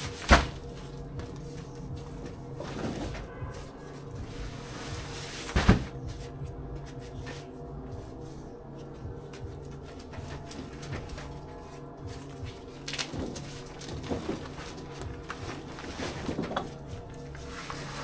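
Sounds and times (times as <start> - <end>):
sacks bumping and scuffing: 0.0 - 8.3, 9.2 - 18.0
low steady hum: 0.0 - 18.0
heavy sack thudding down: 4.9 - 6.1.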